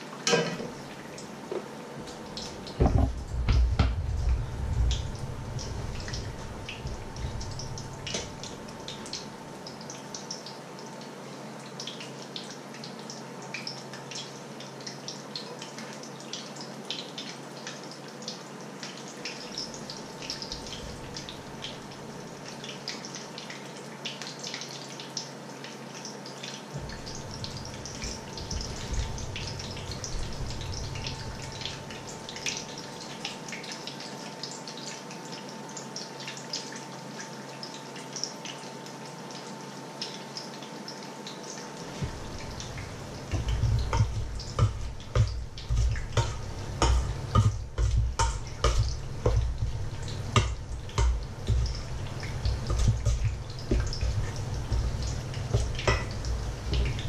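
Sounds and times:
fritters sizzling in hot oil: 26.0 - 38.4, 39.5 - 57.0.

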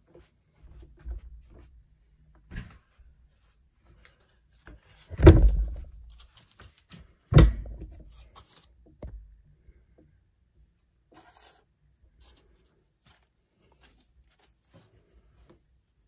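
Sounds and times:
heavy thumps: 5.1 - 6.0, 7.3 - 8.0.

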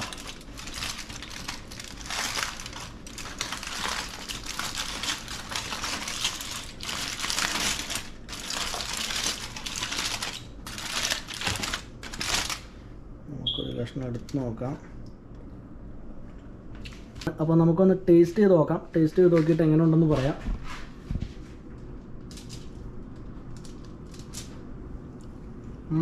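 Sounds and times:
aluminium foil crinkling: 0.0 - 12.8, 22.2 - 24.7.

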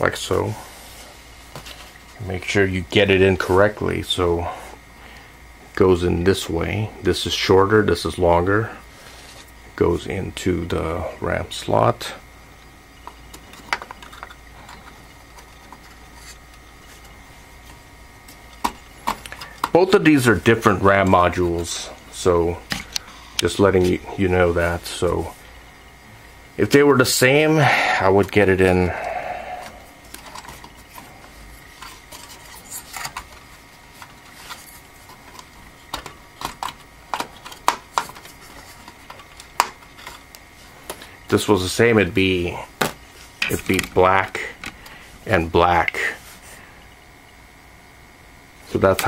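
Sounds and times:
clicks and rubbing on plastic: 13.0 - 21.8, 30.0 - 41.2.

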